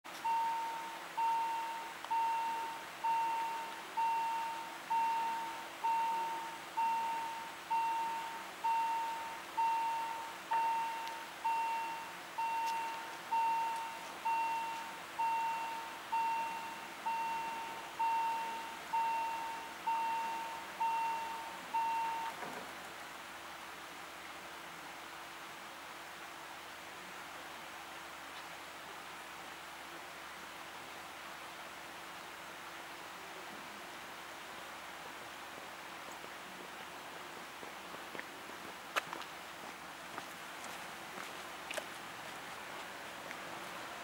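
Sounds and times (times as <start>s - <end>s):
level crossing warning bell: 0.2s - 22.6s.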